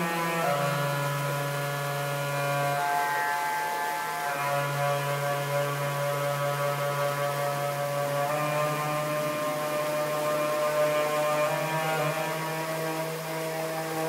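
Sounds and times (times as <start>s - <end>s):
saxophone drone tones: 0.0s - 14.0s.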